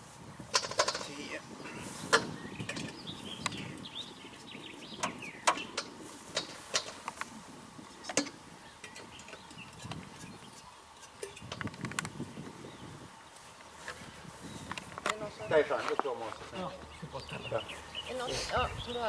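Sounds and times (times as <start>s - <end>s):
faint birdsong: 0.0s - 19.0s
propeller clicks and knocks: 0.5s - 1.3s, 2.1s - 3.6s, 4.9s - 7.3s, 8.0s - 12.2s.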